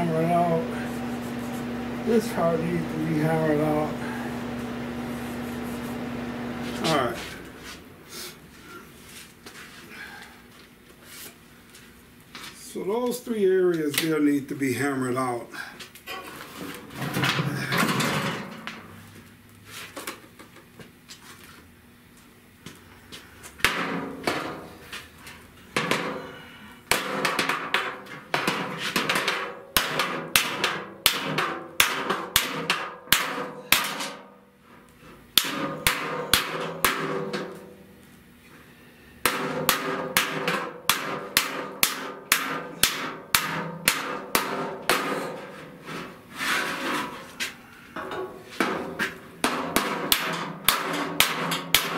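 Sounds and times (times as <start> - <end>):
hammer striking steel sheet: 26.9 - 34.3, 35.4 - 37.6, 39.2 - 45.5, 48.0 - 51.9.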